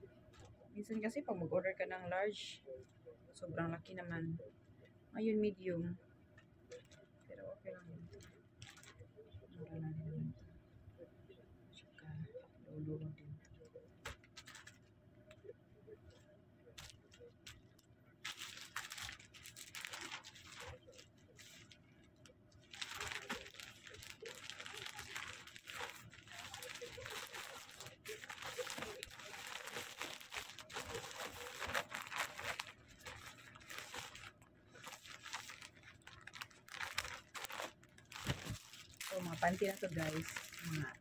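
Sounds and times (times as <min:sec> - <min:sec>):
plastic packaging crinkling: 0:08.2 - 0:09.0, 0:14.0 - 0:14.9, 0:16.8 - 0:41.0.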